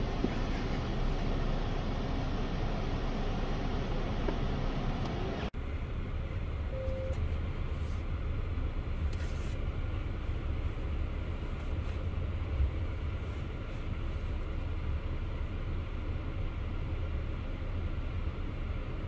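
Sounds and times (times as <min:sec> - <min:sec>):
car engine and road rumble: 0:00.0 - 0:19.0
short faint tone: 0:06.6 - 0:07.3.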